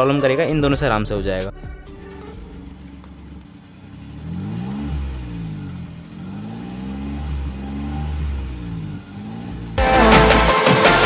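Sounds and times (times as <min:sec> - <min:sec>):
car engine revving: 0:01.8 - 0:11.0.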